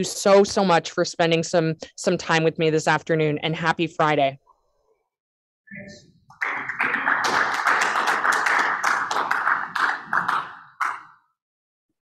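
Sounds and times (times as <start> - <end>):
small audience clapping: 6.3 - 11.3.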